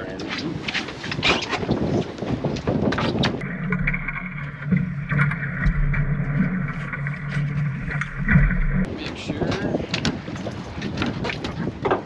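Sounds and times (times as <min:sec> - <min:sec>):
boat engine humming: 0:03.3 - 0:09.0.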